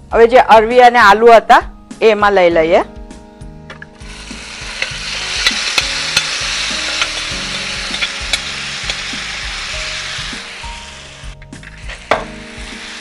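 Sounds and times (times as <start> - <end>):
vegetables sizzling in hot oil: 4.0 - 13.0.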